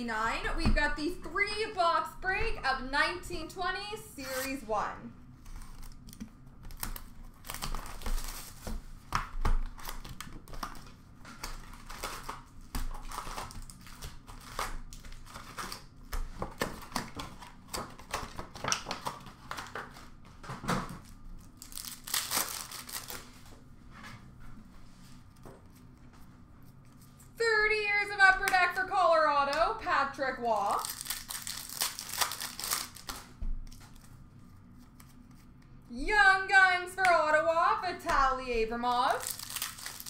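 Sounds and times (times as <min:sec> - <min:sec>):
plastic wrap crinkling and tearing: 0:05.3 - 0:20.2, 0:21.0 - 0:23.5, 0:30.6 - 0:35.6, 0:39.1 - 0:40.0.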